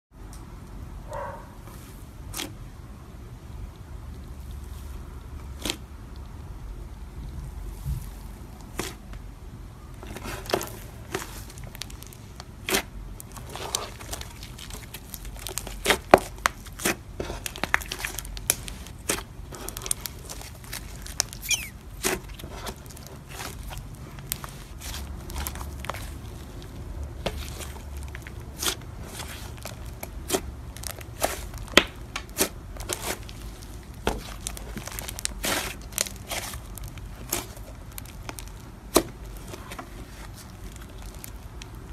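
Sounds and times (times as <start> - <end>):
slime crackling and popping: 10.0 - 41.9.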